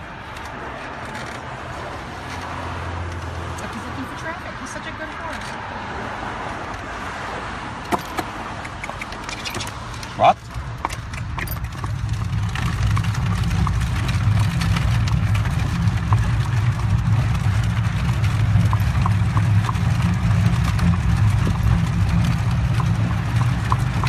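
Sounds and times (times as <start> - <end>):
buggy wheels rumbling: 0.0 - 24.0
horse hoofbeats: 7.9 - 24.0.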